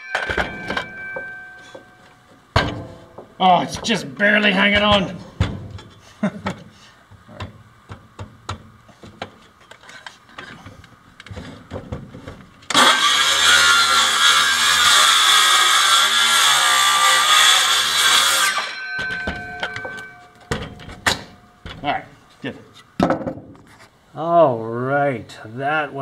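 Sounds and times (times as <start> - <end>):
circular saw cutting wood: 12.7 - 18.8.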